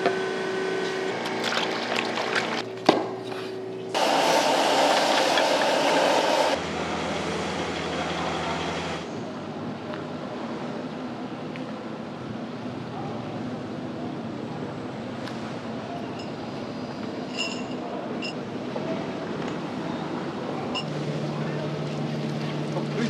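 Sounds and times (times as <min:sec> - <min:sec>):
wok hissing and sizzling: 0:04.0 - 0:07.7.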